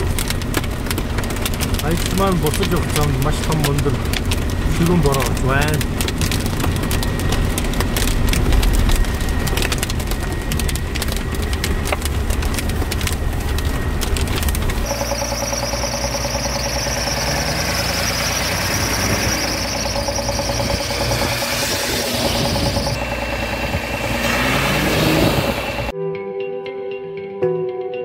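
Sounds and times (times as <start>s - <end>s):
hail and rain on vehicle roof: 0.0s - 25.8s
vehicle engine and tyres rumbling: 0.0s - 25.9s
steady high-pitched whine: 8.4s - 25.9s.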